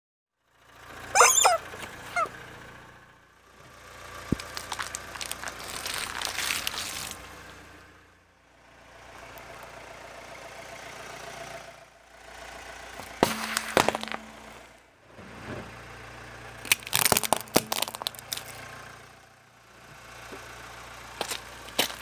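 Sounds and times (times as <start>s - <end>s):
car idling: 0.5s - 22.0s
tyre crunching small objects: 1.2s - 2.3s, 4.2s - 7.4s, 13.2s - 14.6s, 16.6s - 18.7s, 21.2s - 22.0s
drink can bursting: 16.7s - 18.5s.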